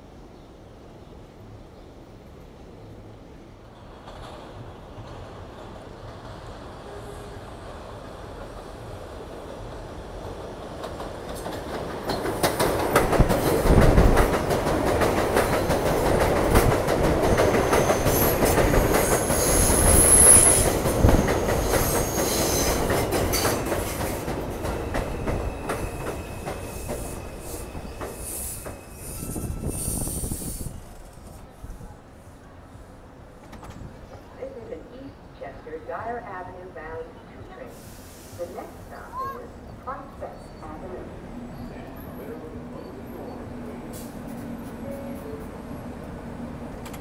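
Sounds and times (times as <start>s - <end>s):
subway train rumble: 0.0s - 47.0s
high squeal: 19.1s - 20.6s, 25.0s - 31.1s.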